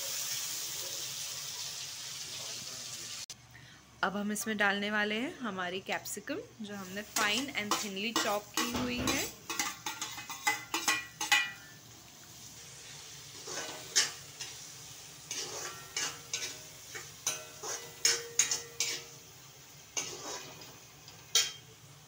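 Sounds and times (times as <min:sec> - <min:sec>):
metal spatula scraping a wok: 0:06.8 - 0:11.7, 0:12.4 - 0:19.3, 0:19.9 - 0:21.7.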